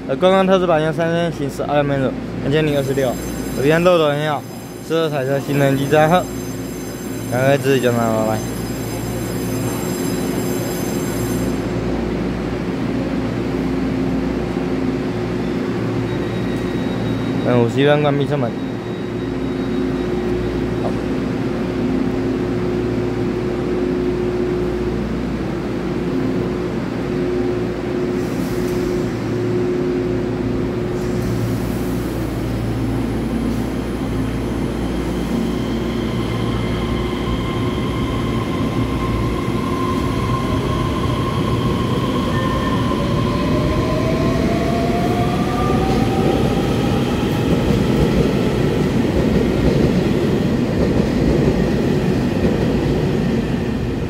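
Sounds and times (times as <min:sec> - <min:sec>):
wheels rumbling on rail: 0:22.6 - 0:54.0.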